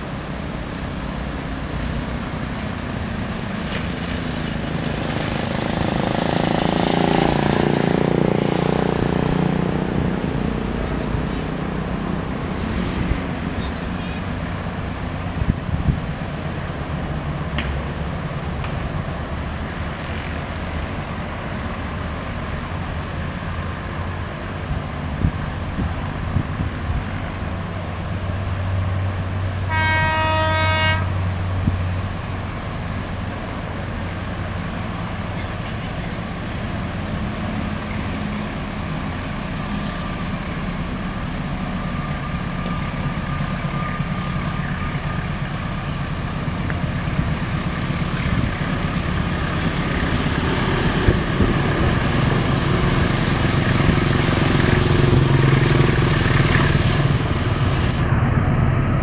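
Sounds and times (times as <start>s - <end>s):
outdoor background noise: 0.0s - 59.0s
train rumble: 0.0s - 59.0s
locomotive horn blast: 29.6s - 31.3s.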